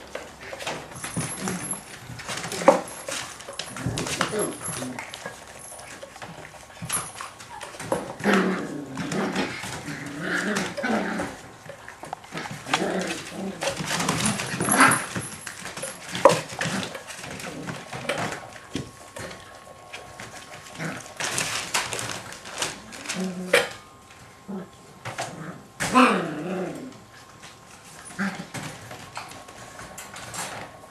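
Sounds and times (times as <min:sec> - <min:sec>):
puppies yapping and growling: 0:00.0 - 0:23.8.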